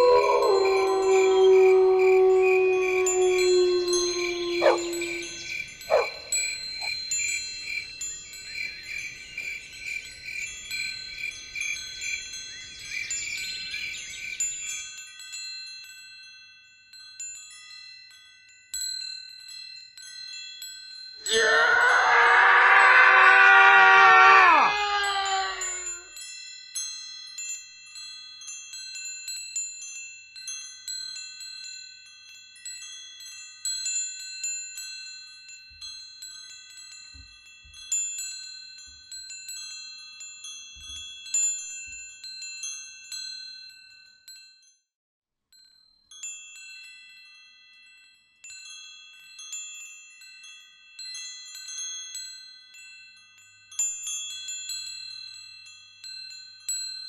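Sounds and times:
metallic chimes ringing: 0.0s - 8.6s.

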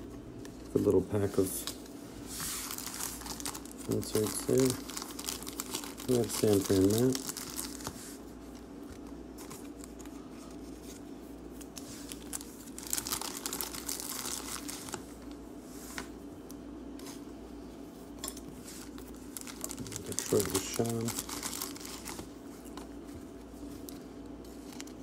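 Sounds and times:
foil wrappers crinkling and tearing: 2.4s - 10.6s, 11.6s - 15.4s, 18.2s - 22.4s, 23.8s - 25.0s.

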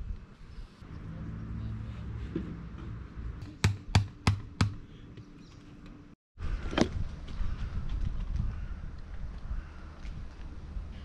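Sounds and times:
tent stake being hammered: 3.4s - 4.8s.

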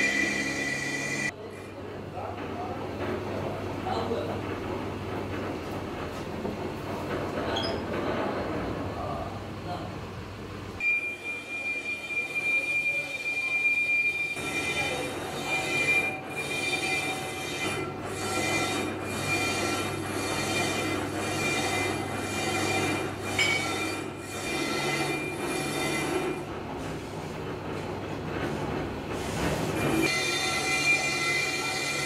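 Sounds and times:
high-pitched metal cutting squeal: 0.0s - 1.3s, 11.0s - 26.4s, 30.0s - 32.0s
lathe humming: 0.0s - 1.3s.

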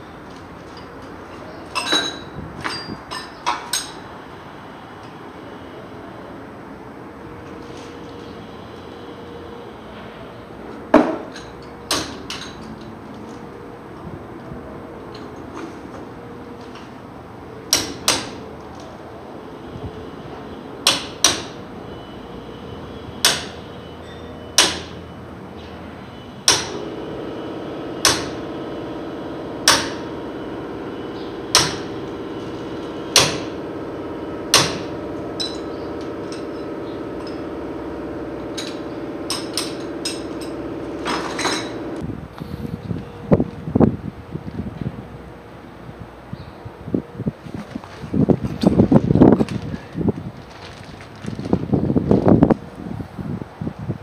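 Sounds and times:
hammer striking metal: 20.8s - 21.6s, 23.2s - 23.6s, 24.6s - 25.0s, 26.5s - 27.0s, 28.0s - 28.6s, 29.6s - 42.0s
steady machine hum: 24.6s - 43.4s.

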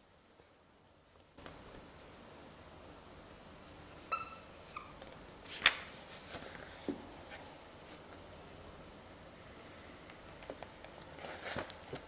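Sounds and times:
marker squeaking on whiteboard: 3.8s - 5.0s.

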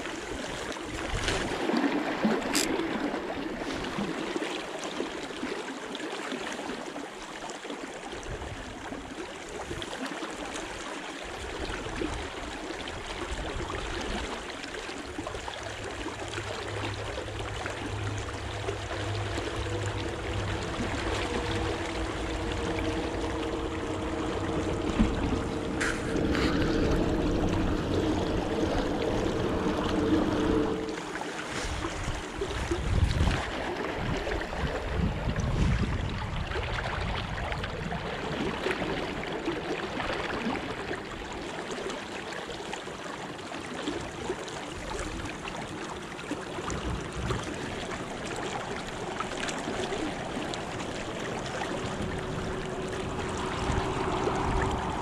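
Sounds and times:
river flowing and swirling: 0.0s - 55.0s
steady low hum: 15.1s - 33.3s, 47.4s - 55.0s.

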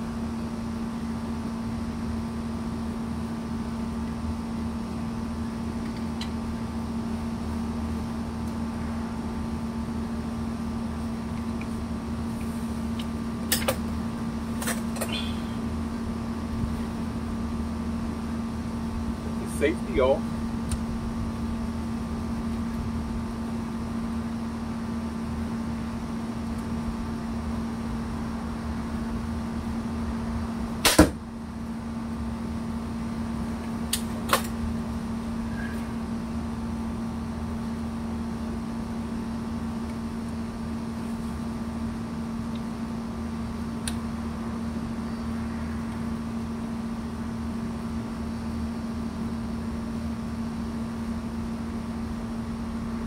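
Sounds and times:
air conditioner hum: 0.0s - 53.0s
crossbow string snap: 30.8s - 31.2s.

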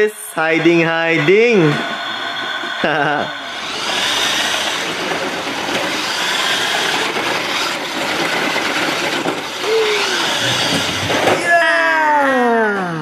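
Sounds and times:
toy truck motor grinding whir: 2.2s - 11.4s.

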